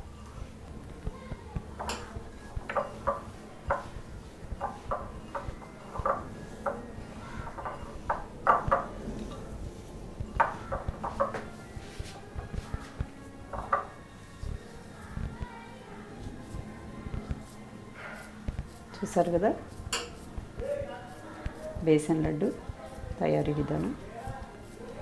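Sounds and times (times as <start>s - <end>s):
hand knocking glass bowl: 7.5s - 9.0s.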